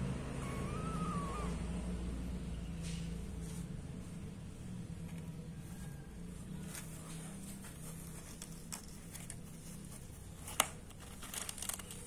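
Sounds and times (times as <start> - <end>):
kittens scratching on cardboard: 5.0 - 12.0.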